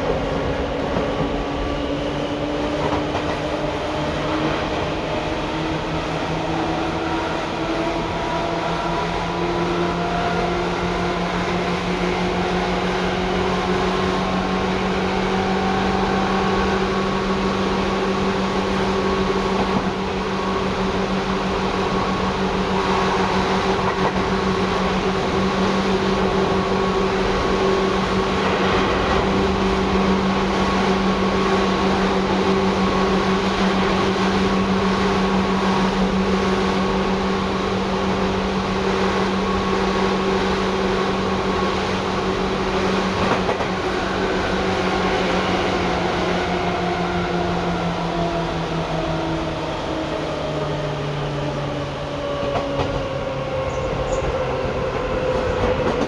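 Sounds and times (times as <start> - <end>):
electric train rumbling: 0.0 - 56.0
falling whine: 19.9 - 42.8.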